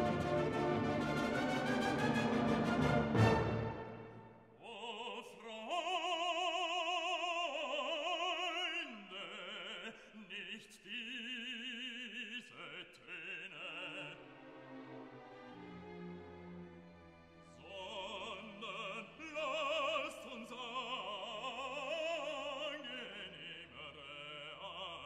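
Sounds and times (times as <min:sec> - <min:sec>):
classical music: 0:00.0 - 0:04.4, 0:14.1 - 0:20.6
operatic voice singing with vibrato: 0:04.6 - 0:14.4, 0:17.6 - 0:25.0.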